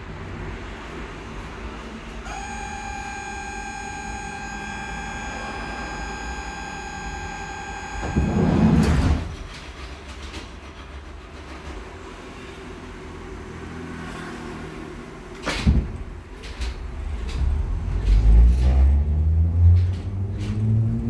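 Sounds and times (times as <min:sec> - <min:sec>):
low hum of train: 0:00.0 - 0:21.0
high warning tone: 0:01.2 - 0:09.2
train doors shutting: 0:01.3 - 0:12.6, 0:15.3 - 0:21.0.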